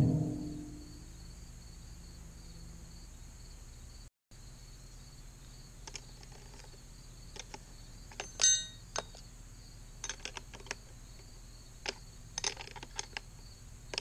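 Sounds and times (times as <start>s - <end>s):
wrench clicking on nuts: 5.8s - 9.2s, 10.0s - 10.8s, 11.8s - 13.3s
ringing metal clink: 8.1s - 9.2s.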